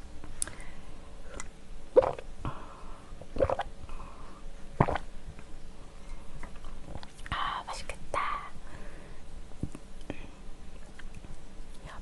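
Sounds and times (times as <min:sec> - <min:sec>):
person gulping from a mug: 0:01.4 - 0:02.2, 0:03.2 - 0:03.7, 0:04.8 - 0:05.0.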